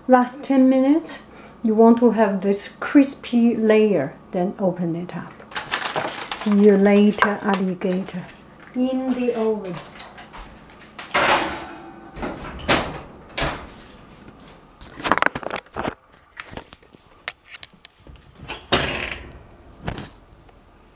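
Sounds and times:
oven door knocks and clatters: 0:11.0 - 0:13.7.

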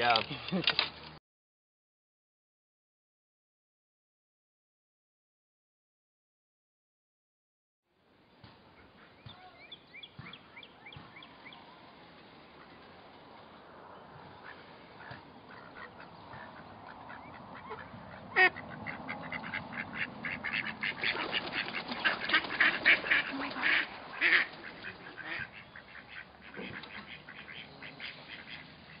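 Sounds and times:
ducks quacking: 0:14.3 - 0:29.0.

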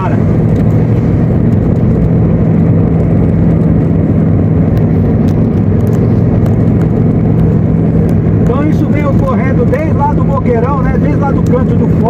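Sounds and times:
car cabin road rumble: 0:00.0 - 0:12.0.

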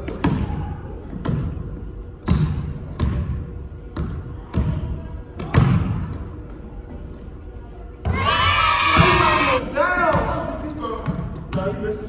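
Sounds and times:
basketball bouncing on court: 0:02.2 - 0:04.8.

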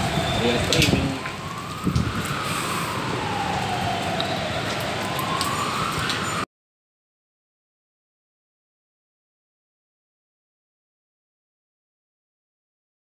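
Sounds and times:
emergency vehicle siren wailing: 0:00.0 - 0:06.5.

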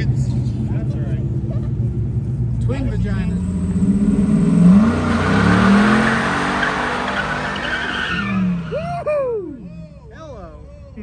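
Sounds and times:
car engine revving high: 0:02.6 - 0:09.7
tyres spinning and squealing: 0:03.4 - 0:10.3.

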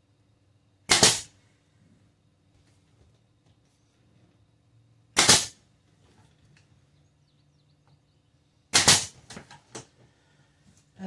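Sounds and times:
nail gun shot into wood: 0:00.9 - 0:01.3, 0:05.2 - 0:05.6, 0:08.7 - 0:09.6.

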